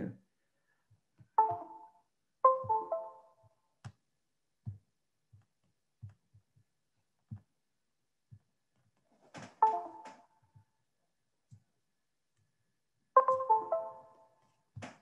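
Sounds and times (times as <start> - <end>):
electronic notification chimes: 2.5 - 3.2, 13.2 - 14.2.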